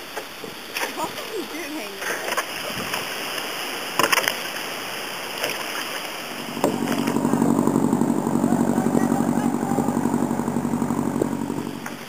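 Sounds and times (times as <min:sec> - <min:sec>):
kayak paddles splashing water: 0:00.0 - 0:12.0
engine idling: 0:06.2 - 0:12.0.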